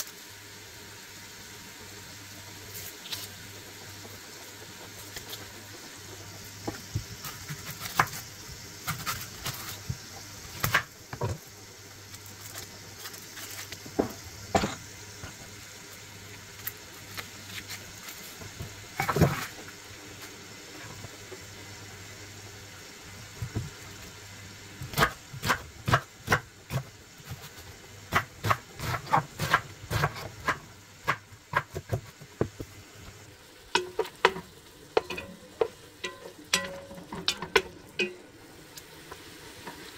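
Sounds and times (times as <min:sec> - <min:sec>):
onion peeling rustles: 0:02.6 - 0:03.5, 0:06.8 - 0:10.8, 0:11.9 - 0:14.4, 0:15.4 - 0:21.1, 0:24.8 - 0:32.8.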